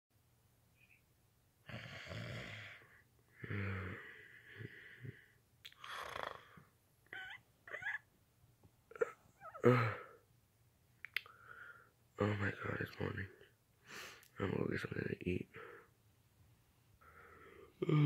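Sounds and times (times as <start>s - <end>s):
person imitating snoring: 1.7s - 2.8s, 5.8s - 6.6s, 17.8s - 18.0s
person moaning: 8.9s - 10.1s, 17.8s - 18.0s.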